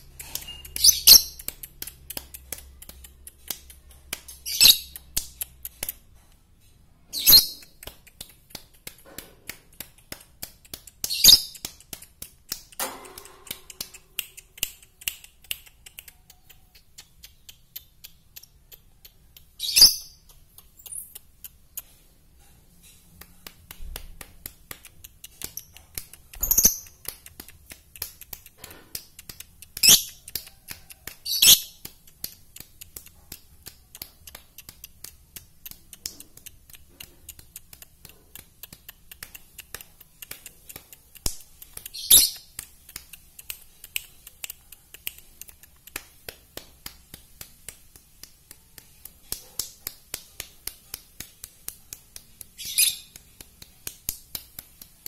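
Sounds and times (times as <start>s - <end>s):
lovebird shrill calls: 0.5s - 1.4s, 4.4s - 4.9s, 11.1s - 11.5s, 19.6s - 20.2s, 42.0s - 42.4s, 52.6s - 53.1s.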